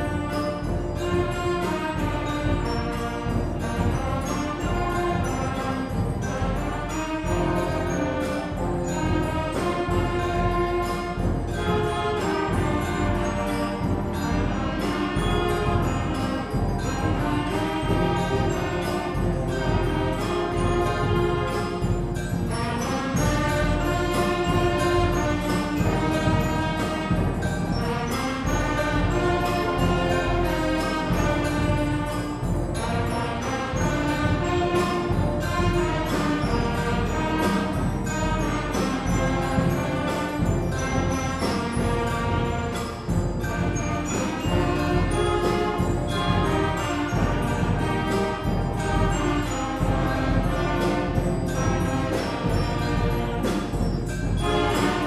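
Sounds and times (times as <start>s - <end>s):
concert band playing: 0.0s - 55.0s.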